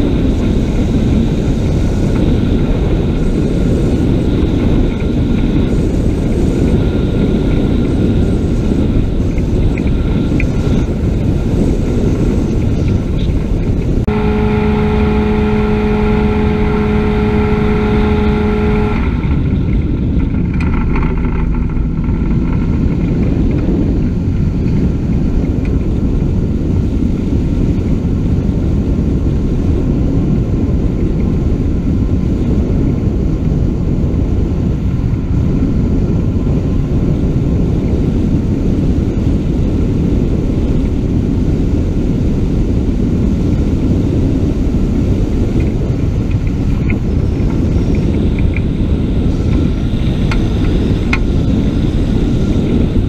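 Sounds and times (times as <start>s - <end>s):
ultralight aircraft engine and propeller: 0.0s - 53.0s
wind rushing over microphone: 0.0s - 53.0s
steady hum: 0.1s - 26.3s
low tone: 13.2s - 25.4s.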